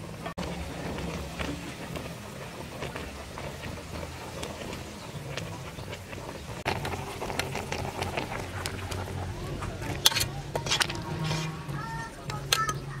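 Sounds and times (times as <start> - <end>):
broth splashing: 0.0 - 13.0
liquid boiling in a pot: 0.0 - 13.0
metal tongs clattering in a pot: 6.9 - 13.0.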